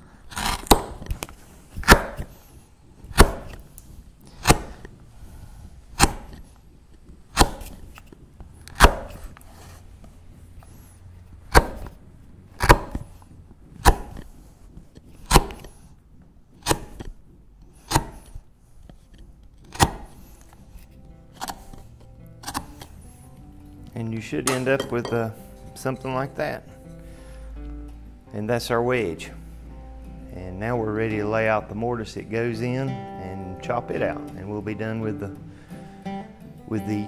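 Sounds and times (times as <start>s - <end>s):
chisel snicking through wood: 0.3s - 2.5s, 3.1s - 5.0s, 5.9s - 9.5s, 11.5s - 12.0s, 12.6s - 13.2s, 13.8s - 14.3s, 14.9s - 15.8s, 16.5s - 22.9s.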